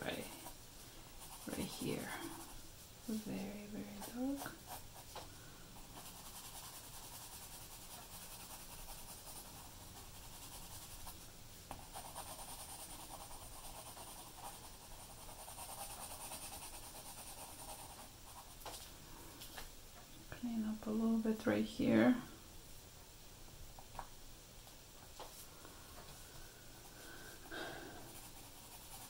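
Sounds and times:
pencil scratching on paper: 0.0s - 0.6s, 1.2s - 5.1s, 5.8s - 18.6s, 26.9s - 29.0s.

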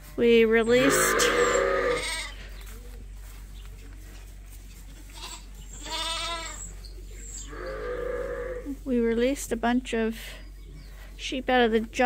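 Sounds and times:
faint barn background: 0.0s - 12.0s
sheep bleating: 0.7s - 2.4s, 5.0s - 6.7s, 7.4s - 8.7s.

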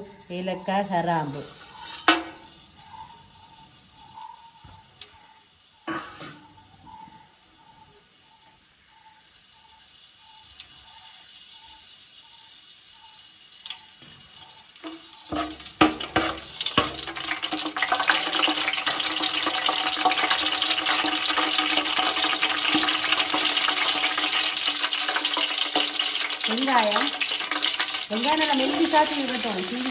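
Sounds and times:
spices sizzling in hot oil: 1.2s - 6.8s, 7.4s - 29.9s
metal ladle knocking pot: 14.8s - 18.2s.

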